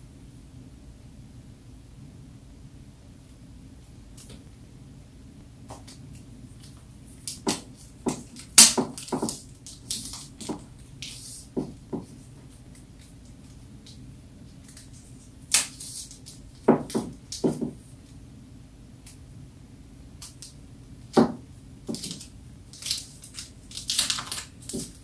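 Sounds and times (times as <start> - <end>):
phone packaging being handled: 21.9 - 25.0.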